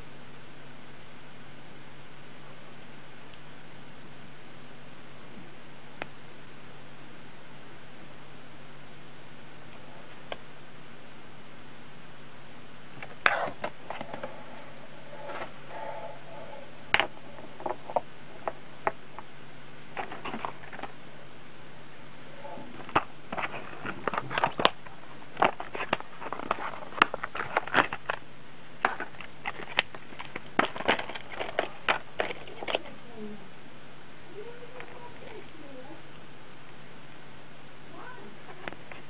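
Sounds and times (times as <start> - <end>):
steady low hum: 0.0 - 39.0
plastic packaging crackling: 19.9 - 21.0, 22.8 - 33.0.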